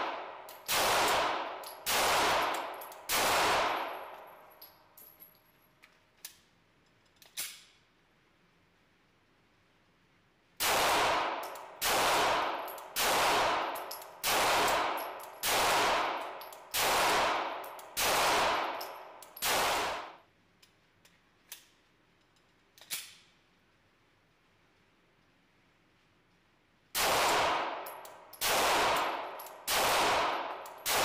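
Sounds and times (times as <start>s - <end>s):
pistol shots echoing: 0.0s - 4.4s, 10.6s - 20.2s, 27.0s - 31.0s
pistol metallic clicks: 0.3s - 7.8s, 11.3s - 11.8s, 12.5s - 13.0s, 13.6s - 16.8s, 17.5s - 19.6s, 20.6s - 23.4s, 27.7s - 31.0s.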